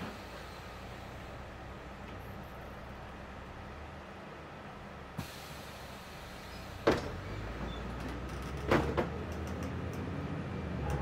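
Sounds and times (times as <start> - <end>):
bus engine and road drone: 0.0 - 11.0
air hiss: 5.2 - 7.2.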